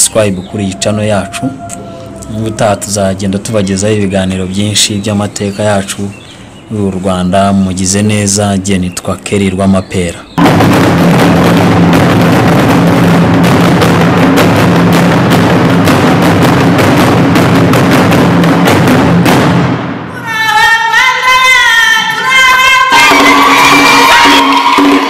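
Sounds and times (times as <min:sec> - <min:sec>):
loud outro music: 0:10.4 - 0:20.1, 0:22.9 - 0:25.0.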